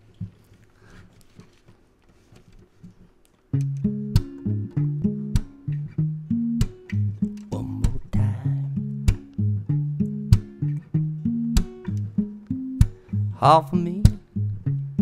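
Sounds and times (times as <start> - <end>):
guitar handling sounds: 0.0 - 15.0
acoustic blues guitar: 3.5 - 15.0.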